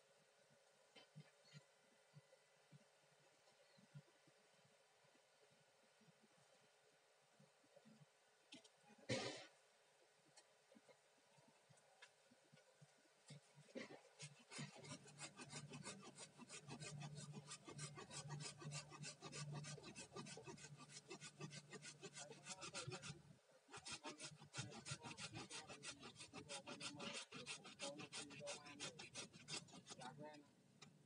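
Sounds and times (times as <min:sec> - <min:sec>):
hand saw cutting bamboo: 0:14.2 - 0:30.2.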